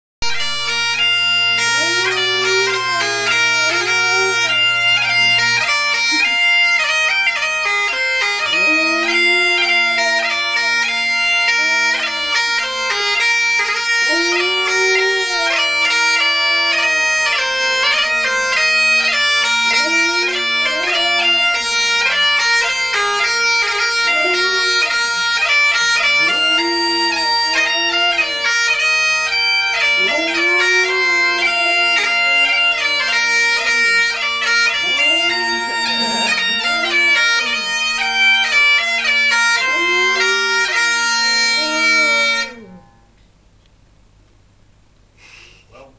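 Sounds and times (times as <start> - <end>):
bagpipes playing: 0.2 - 42.8
dog howling: 1.0 - 43.1.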